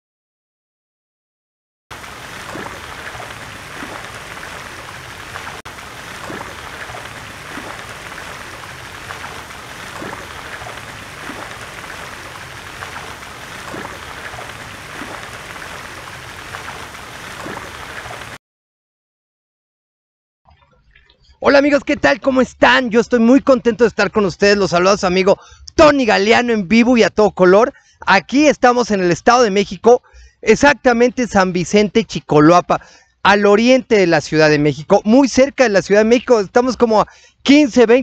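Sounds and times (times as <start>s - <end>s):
rain-like rushing noise: 1.9s - 18.4s.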